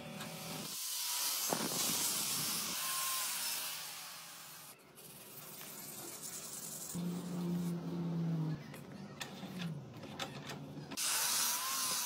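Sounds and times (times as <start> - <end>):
angle grinder grinding steel: 0.2 - 4.8, 11.0 - 12.0.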